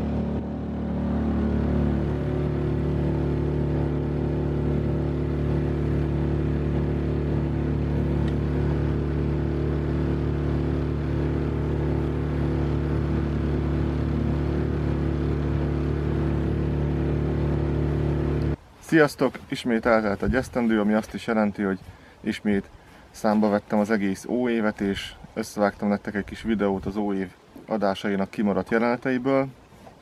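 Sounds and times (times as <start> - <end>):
outboard motor droning: 0.0 - 18.6.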